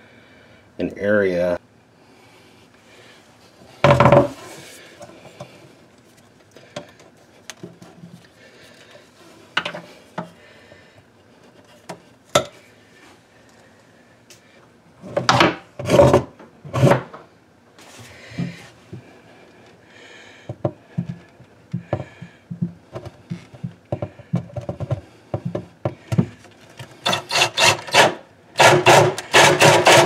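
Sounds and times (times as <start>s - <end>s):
clicks and knocks on wood: 20.5s - 26.9s.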